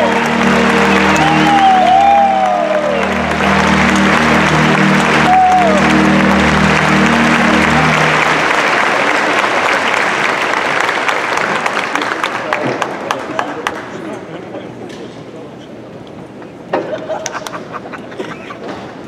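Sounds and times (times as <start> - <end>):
music closing chord: 0.0 - 9.7
audience applauding: 0.0 - 14.1.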